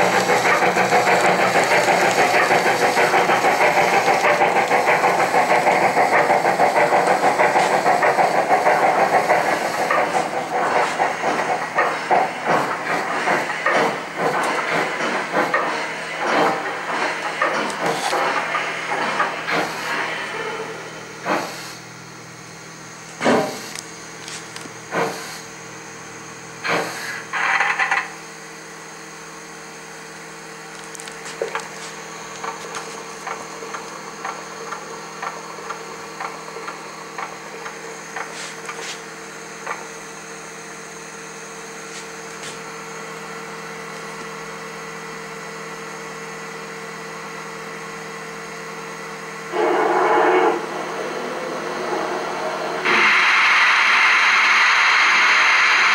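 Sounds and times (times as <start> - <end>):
steam hiss: 0.0 - 22.0, 23.2 - 25.5, 26.1 - 27.6, 31.2 - 43.1, 48.8 - 55.9
steady hum: 0.0 - 27.3, 48.9 - 55.9.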